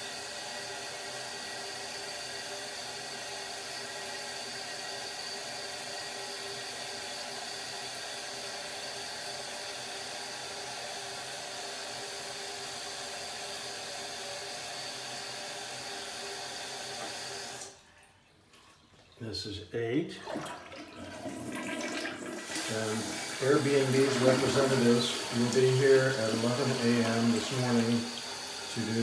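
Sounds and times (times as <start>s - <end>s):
steady whirring hiss: 22.4s - 29.0s.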